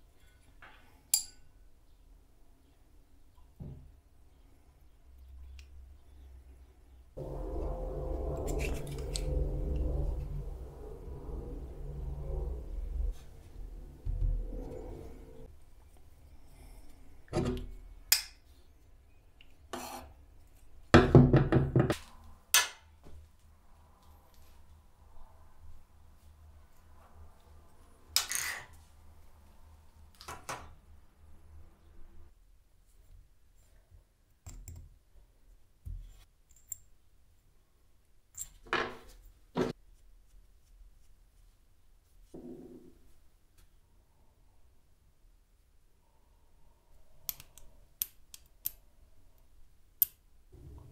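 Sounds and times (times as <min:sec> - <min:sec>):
metal scraping rattle: 0:07.2 - 0:15.5.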